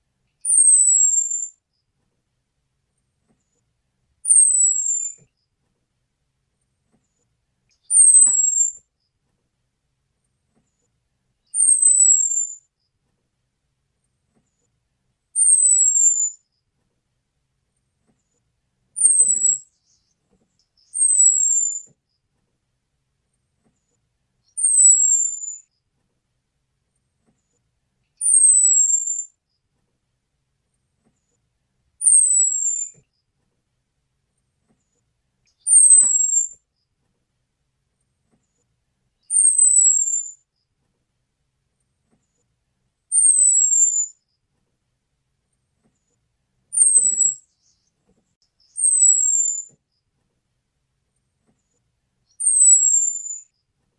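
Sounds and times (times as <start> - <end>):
thin high falling bird whistle: 0.4 - 1.5, 4.3 - 5.3, 7.8 - 8.8, 11.5 - 12.6, 15.4 - 16.4, 19.0 - 20.0, 20.8 - 21.9, 24.5 - 25.7, 28.2 - 29.4, 32.0 - 33.0, 35.5 - 36.6, 39.2 - 40.4, 43.1 - 44.2, 46.8 - 47.8, 48.6 - 49.7, 52.3 - 53.5.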